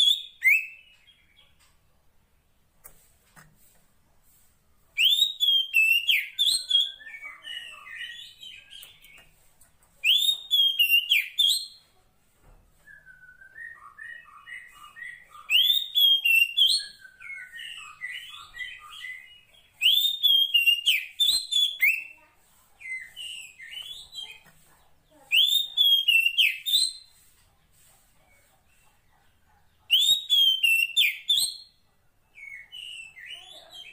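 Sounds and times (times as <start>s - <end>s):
bird whistling and chattering: 0.0s - 0.9s, 5.0s - 9.2s, 10.0s - 11.8s, 12.9s - 22.2s, 25.3s - 27.1s, 29.9s - 31.8s.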